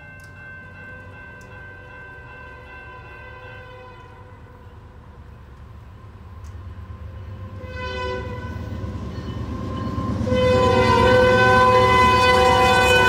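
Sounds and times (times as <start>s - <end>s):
locomotive air horn blasts: 3.2s - 4.6s, 7.5s - 8.7s, 10.1s - 13.0s.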